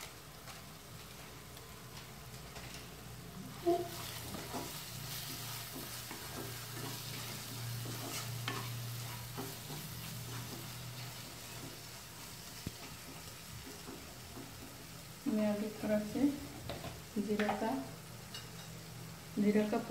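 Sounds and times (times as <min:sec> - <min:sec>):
oil sizzling: 0:00.0 - 0:19.9
spatula scraping pan: 0:03.5 - 0:14.8.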